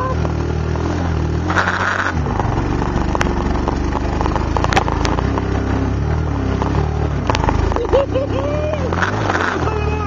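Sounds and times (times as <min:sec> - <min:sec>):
atv engine running: 0:00.0 - 0:10.0
knocks and rattles: 0:01.5 - 0:05.7.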